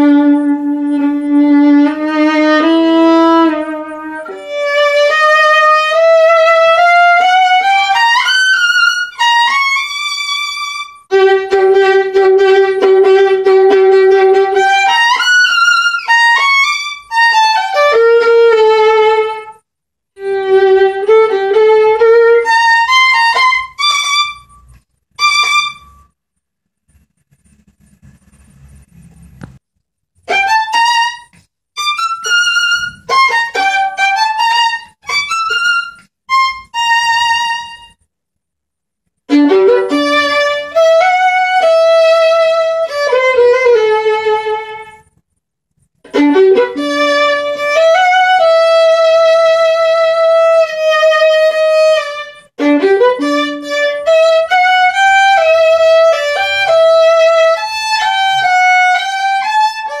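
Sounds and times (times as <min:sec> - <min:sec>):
solo violin bowed: 0:00.0 - 0:26.1, 0:30.2 - 0:38.0, 0:39.3 - 0:45.2, 0:46.0 - 1:00.0.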